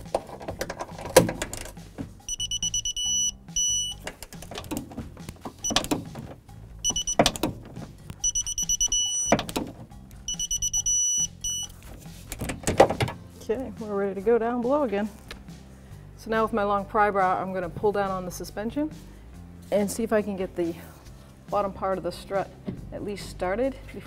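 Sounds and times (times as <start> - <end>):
torque wrench beeping: 2.3 - 4.0, 5.6 - 6.0, 6.8 - 7.5, 8.2 - 9.5, 10.3 - 11.8.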